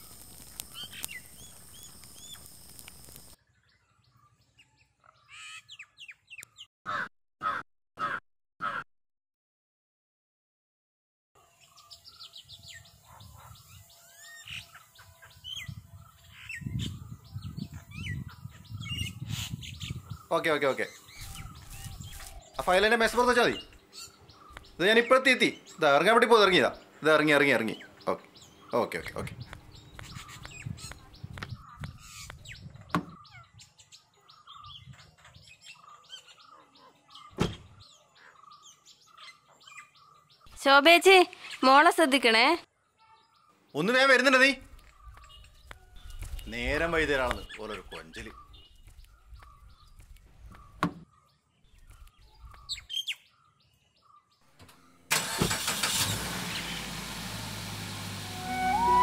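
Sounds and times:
small birds chirping: 0.0 - 6.7, 11.4 - 55.1, 55.7 - 57.0
car door thudding shut: 37.4 - 37.7.

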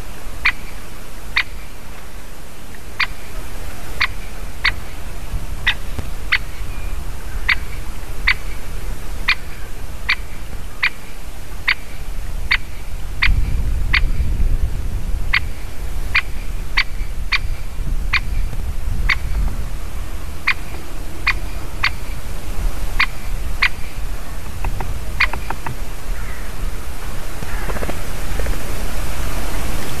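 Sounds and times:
wind rumble on microphone: 0.0 - 30.0
woodpecker calls: 0.4 - 1.8, 2.7 - 5.0, 5.6 - 14.3, 15.3 - 18.5, 20.4 - 22.2, 22.9 - 26.6.

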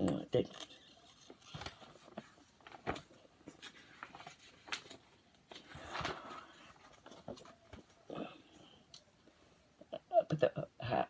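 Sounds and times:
page turning rustle: 0.0 - 8.0.

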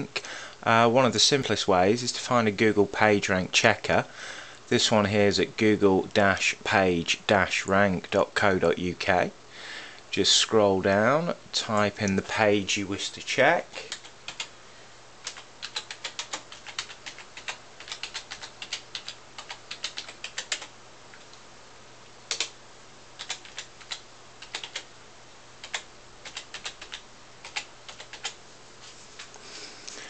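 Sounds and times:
keyboard typing clicks: 15.2 - 20.7, 22.3 - 22.5, 23.2 - 24.9, 25.6 - 28.4.

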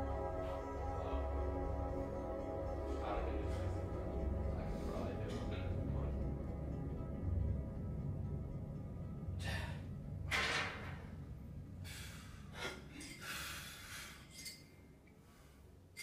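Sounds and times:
background music: 0.0 - 13.2
person breathing sharply: 11.8 - 14.4.

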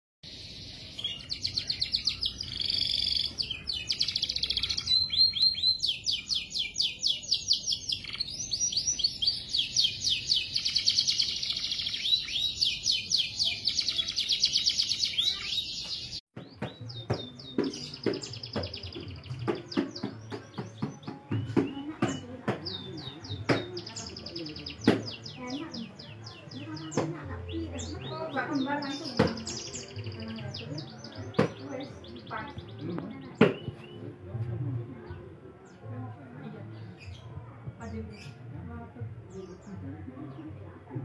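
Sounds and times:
bird chirping sharply: 0.3 - 16.2
finch singing trills: 0.3 - 16.2.

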